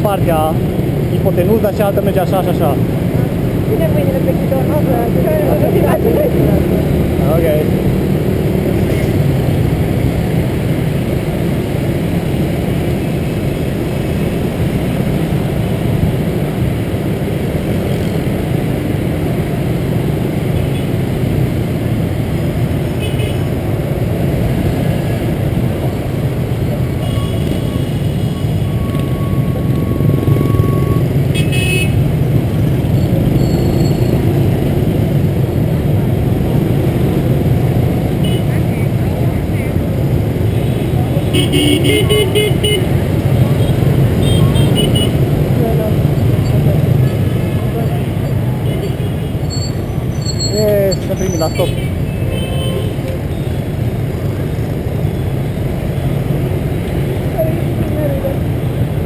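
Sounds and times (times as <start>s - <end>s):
scooter engine and road rumble: 0.0s - 59.0s
scooter horn beeps: 44.2s - 45.2s.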